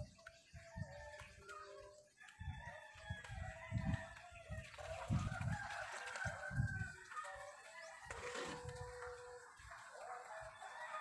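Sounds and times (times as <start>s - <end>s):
rooster crowing: 7.8s - 11.0s.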